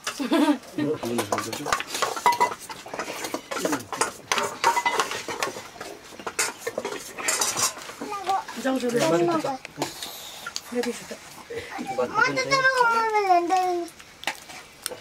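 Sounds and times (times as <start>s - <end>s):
spoons scraping metal plates: 1.0s - 11.1s.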